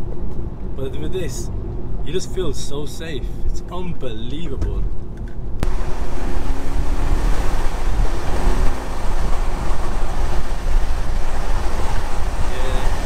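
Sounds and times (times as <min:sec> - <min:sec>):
wind and road noise in car: 0:00.0 - 0:13.0
low engine drone: 0:04.9 - 0:13.0.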